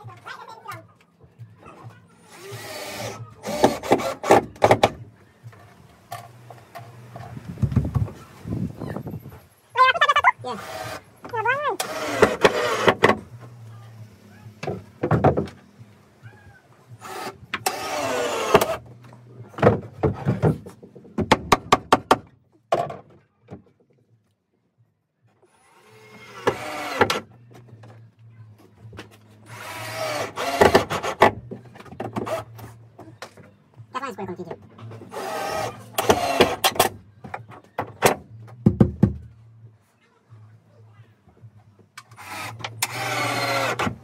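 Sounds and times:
people talking: 9.8s - 10.6s, 11.3s - 11.8s, 33.9s - 34.6s.

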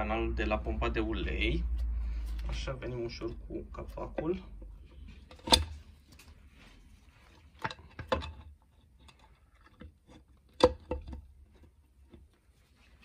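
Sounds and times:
metal cover clicking and knocking: 5.3s - 5.8s, 7.6s - 9.2s.

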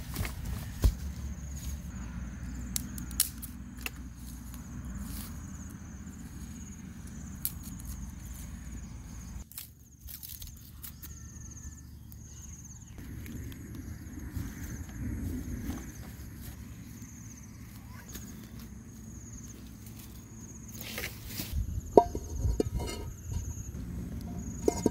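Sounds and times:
steady low rumble: 13.0s - 20.5s, 21.2s - 24.9s
stones and sticks knocking: 21.9s - 24.9s.

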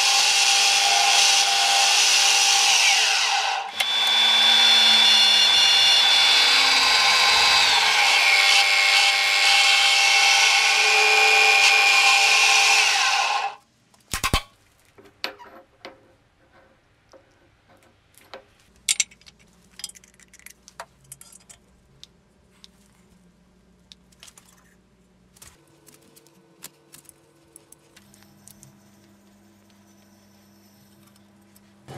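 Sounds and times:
power tool whining: 0.0s - 13.6s.

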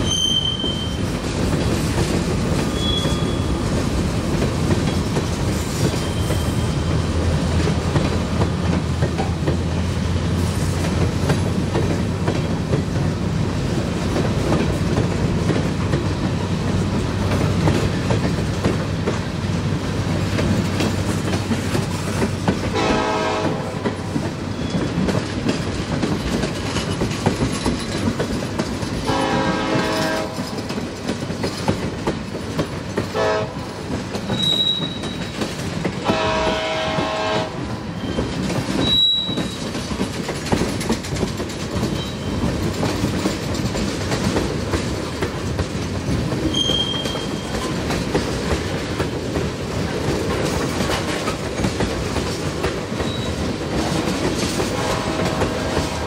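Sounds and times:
high wheel squeals: 0.0s - 1.1s, 2.6s - 3.7s, 5.6s - 6.9s, 24.5s - 25.0s, 34.3s - 35.4s, 37.9s - 39.7s, 41.9s - 42.5s, 46.5s - 47.7s, 53.0s - 53.4s
train wheels rumbling and clattering: 0.0s - 56.0s
distant train horn blasts: 22.7s - 24.2s, 29.0s - 30.6s, 33.1s - 33.8s, 36.0s - 38.2s, 54.6s - 56.0s.

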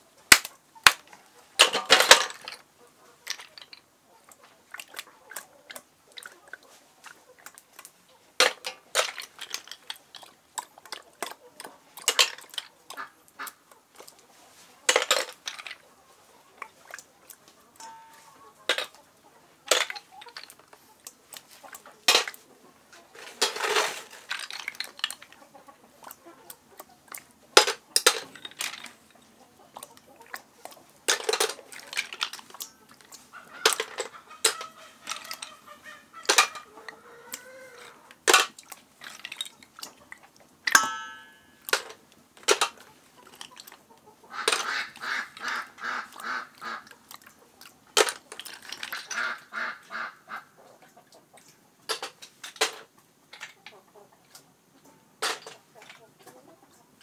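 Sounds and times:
snail shells clicking on steel bowl: 3.2s - 3.9s, 7.4s - 13.5s, 23.3s - 25.4s, 27.1s - 29.2s, 31.0s - 39.8s, 40.7s - 43.8s
poultry calling: 32.8s - 38.2s, 43.9s - 47.0s, 49.0s - 51.0s.

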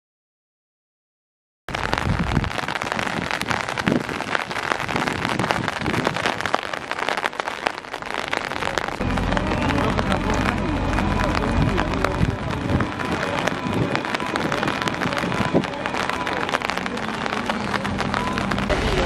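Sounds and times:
heavy rain: 1.7s - 19.0s
low rumble: 7.7s - 19.0s.

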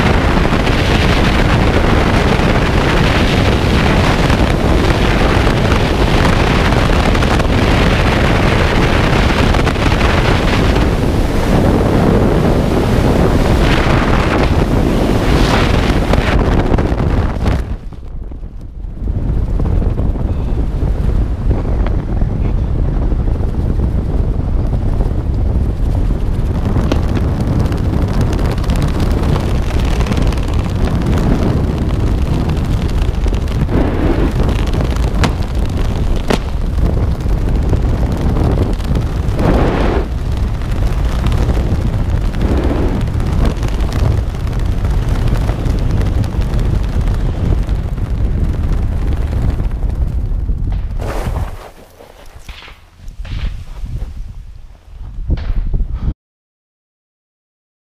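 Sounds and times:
wind rushing over microphone: 0.0s - 56.2s.

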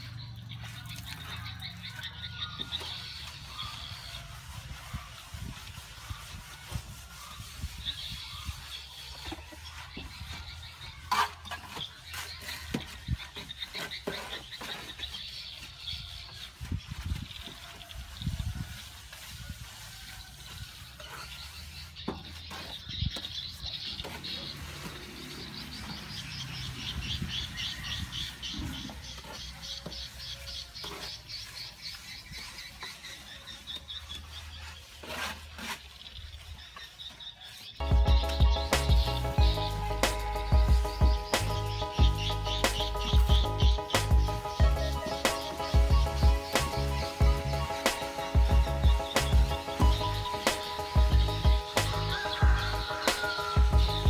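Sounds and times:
trowel scraping mortar on wall: 0.6s - 26.2s, 28.4s - 40.3s
rapid high chirping: 37.4s - 54.0s.

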